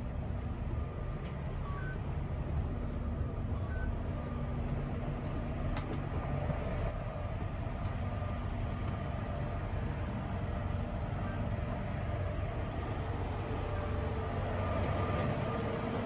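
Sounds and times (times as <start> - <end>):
bus engine idling: 0.0 - 16.0
short electronic beep: 1.6 - 2.0, 3.5 - 4.0.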